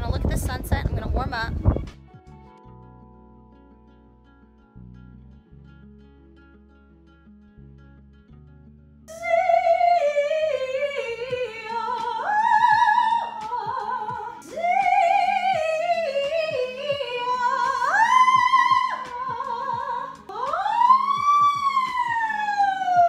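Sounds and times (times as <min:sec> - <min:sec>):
woman singing vocal exercises: 0:09.1 - 0:23.0.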